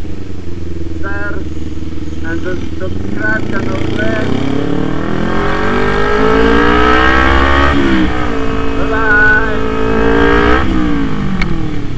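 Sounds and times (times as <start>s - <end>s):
motorcycle engine revving through gears: 0.0s - 11.9s.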